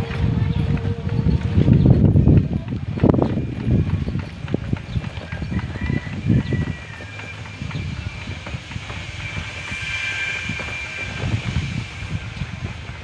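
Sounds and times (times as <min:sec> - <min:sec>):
bicycle rattling over road: 0:00.0 - 0:09.6
wind rumbling on microphone: 0:00.0 - 0:13.0.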